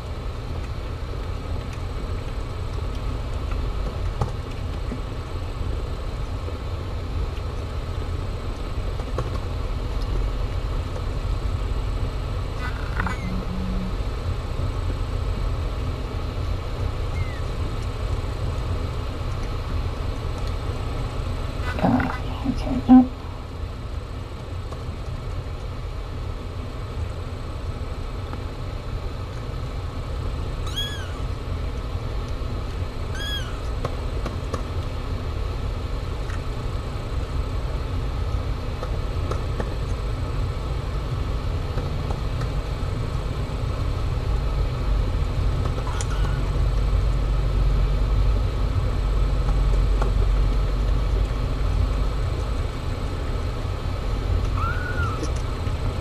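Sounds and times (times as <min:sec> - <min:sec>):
kitten mews: 0:12.6 - 0:14.0, 0:30.6 - 0:31.2, 0:33.1 - 0:33.7, 0:45.8 - 0:46.5, 0:54.5 - 0:55.3.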